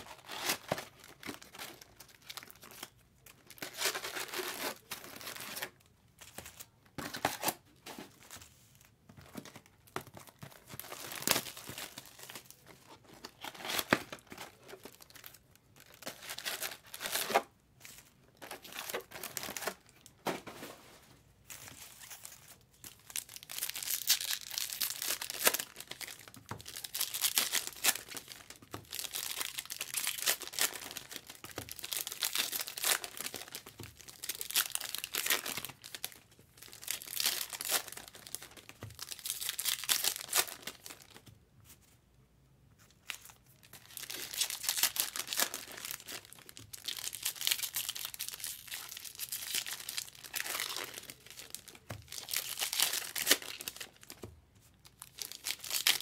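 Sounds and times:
plastic wrapping crinkling: 0:21.5 - 0:41.3, 0:42.9 - 0:56.0.

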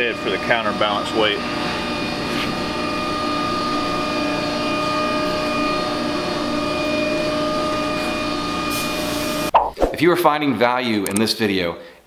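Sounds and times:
factory machinery hum: 0:00.0 - 0:09.5
constant whine: 0:00.0 - 0:10.0.

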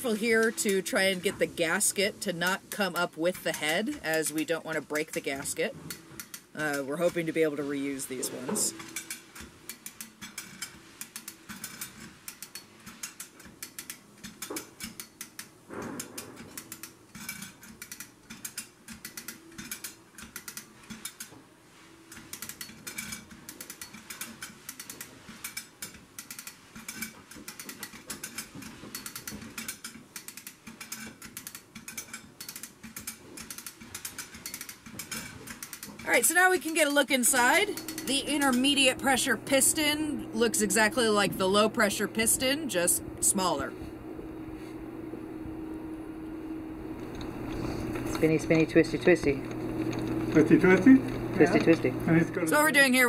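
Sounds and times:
chain hoist ratchet clicks: 0:02.4 - 0:07.3, 0:08.7 - 0:21.4, 0:22.1 - 0:39.6.

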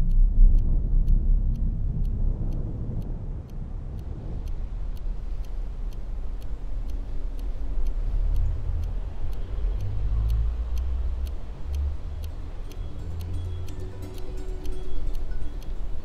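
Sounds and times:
deep low rumbling drone: 0:00.0 - 0:05.2
clock ticking: 0:00.0 - 0:16.0.

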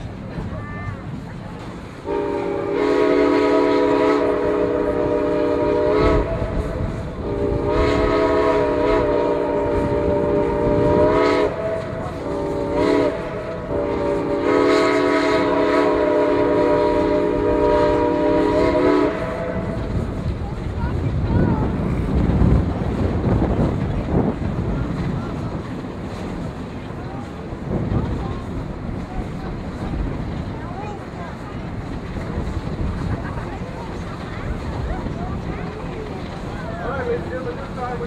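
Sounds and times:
rumble of moving train: 0:00.0 - 0:38.0
steam locomotive chime whistle: 0:02.0 - 0:19.8.

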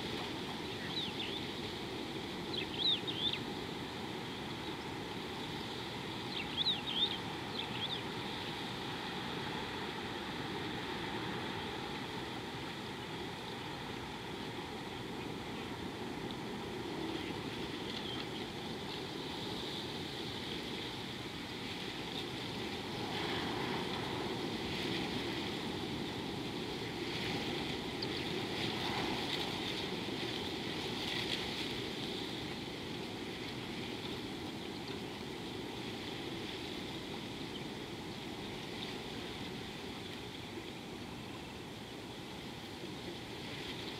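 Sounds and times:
steady high hiss: 0:00.0 - 0:43.9
wind-like rushing: 0:21.6 - 0:32.7.

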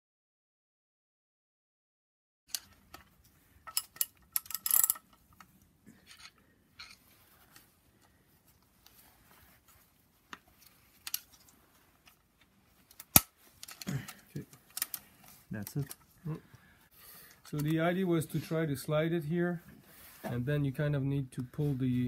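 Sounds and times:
metal chain clinking: 0:03.7 - 0:05.2.

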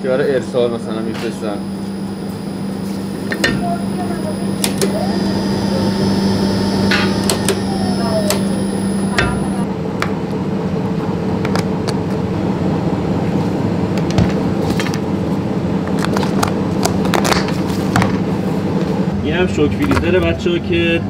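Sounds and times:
freezer motor humming: 0:00.1 - 0:09.7.

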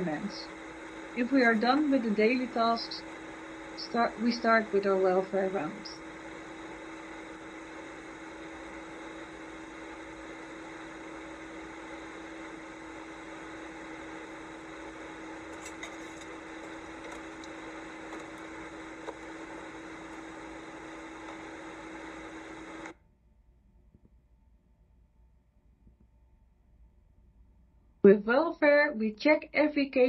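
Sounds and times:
blower whoosh with hum: 0:00.0 - 0:22.9.

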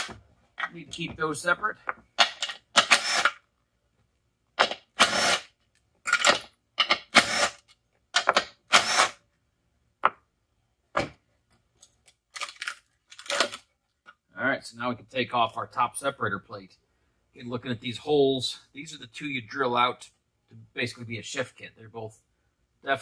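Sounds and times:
cordless drill bursts: 0:02.8 - 0:03.4, 0:05.0 - 0:05.5, 0:07.1 - 0:07.6, 0:08.7 - 0:09.2.

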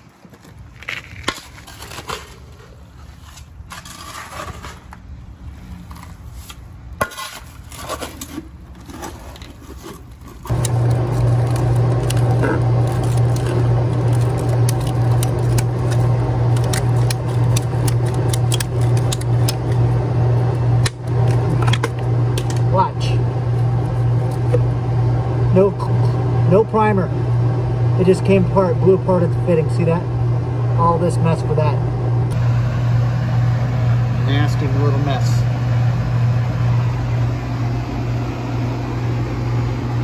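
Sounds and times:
shovel scraping in dirt: 0:00.4 - 0:10.5
water pump droning: 0:08.8 - 0:40.0.

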